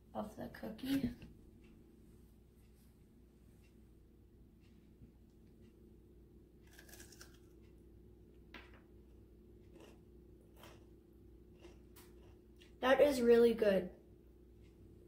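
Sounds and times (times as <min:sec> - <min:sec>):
cookie crunching while chewed: 0:06.6 - 0:07.8, 0:09.0 - 0:12.8.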